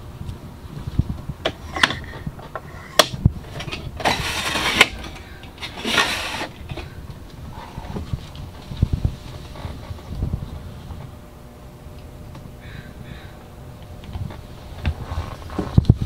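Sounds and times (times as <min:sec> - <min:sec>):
plastic tray sliding scrape: 0:02.7 - 0:06.9.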